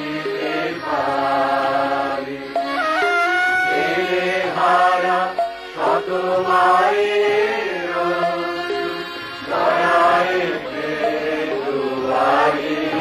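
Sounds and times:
person singing slow song: 0:00.0 - 0:09.1.

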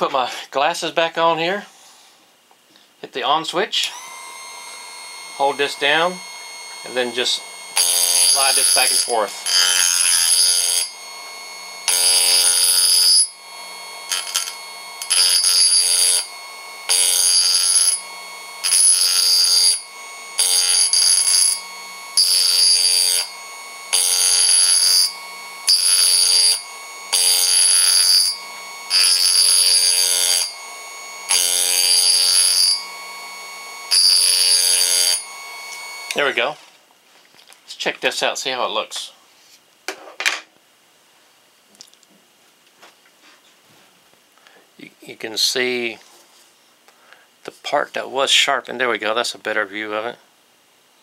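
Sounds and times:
sharpener motor whining: 0:03.8 - 0:36.4
chisel grinding on wheel: 0:03.9 - 0:36.2.

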